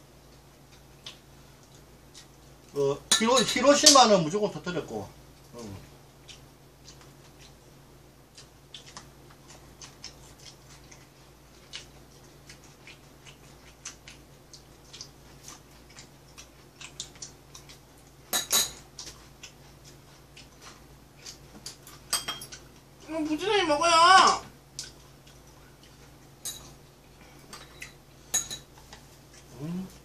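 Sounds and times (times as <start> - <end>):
low steady hum: 0.0 - 30.0
cutlery clinking against bowls: 3.1 - 4.0, 18.3 - 18.8, 21.6 - 22.6, 26.4 - 26.8, 27.4 - 28.8.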